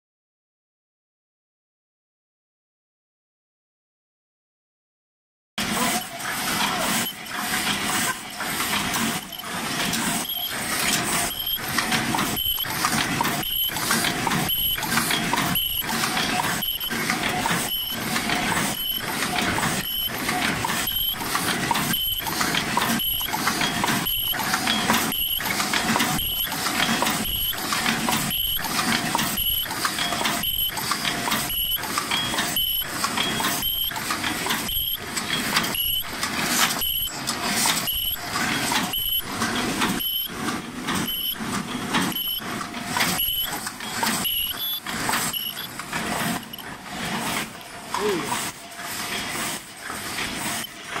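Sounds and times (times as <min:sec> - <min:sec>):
machine mechanical cycling: 0:05.6 - 0:47.8
short high squeak: 0:09.0 - 0:12.8, 0:43.1 - 0:45.7.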